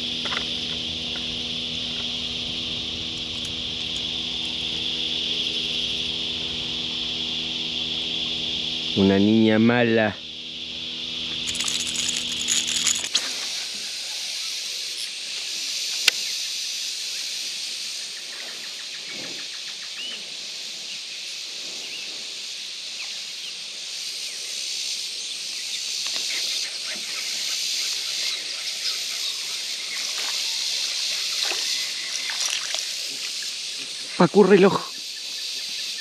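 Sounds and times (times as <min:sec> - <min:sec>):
outdoor ambience hiss: 0:00.0 - 0:36.0
fish splashing into water: 0:30.1 - 0:33.6.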